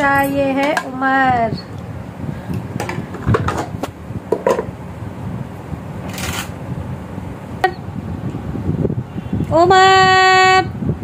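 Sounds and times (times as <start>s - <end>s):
plates clinking and knocking: 2.8s - 4.7s.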